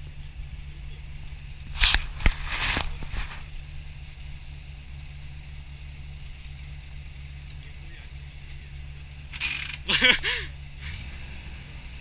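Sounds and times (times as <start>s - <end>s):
truck engine idling: 0.0s - 12.0s
crackling rustle: 1.6s - 3.8s.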